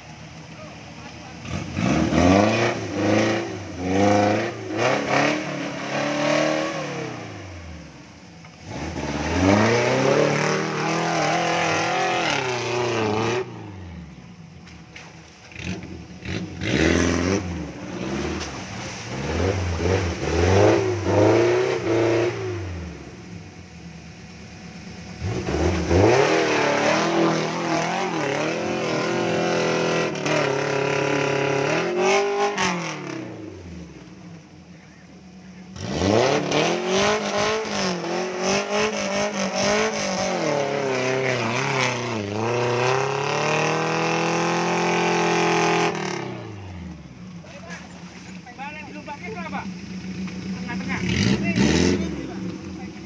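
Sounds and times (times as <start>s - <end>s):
engine revving hard: 1.4s - 7.9s, 8.6s - 13.8s, 15.5s - 23.1s, 25.2s - 33.8s, 35.7s - 46.8s, 50.5s - 53.0s.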